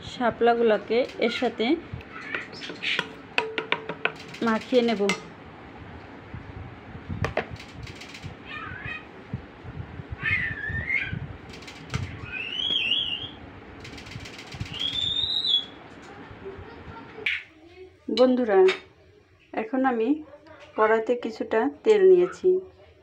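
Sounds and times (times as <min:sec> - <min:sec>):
high wavering animal calls: 0:01.2 - 0:03.2, 0:08.3 - 0:09.2, 0:10.1 - 0:11.2, 0:12.1 - 0:13.4, 0:14.5 - 0:15.8.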